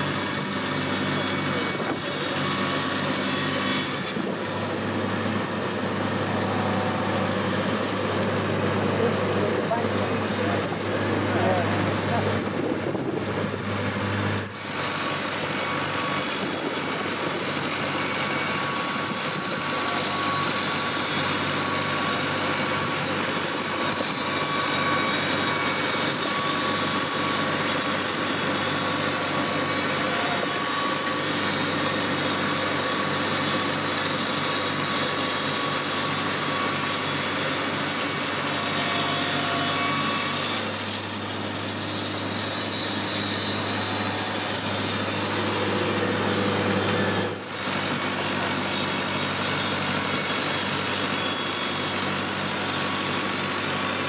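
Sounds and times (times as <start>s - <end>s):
band saw cutting wood: 0.0s - 54.0s
generator humming: 4.2s - 14.8s, 40.6s - 51.0s.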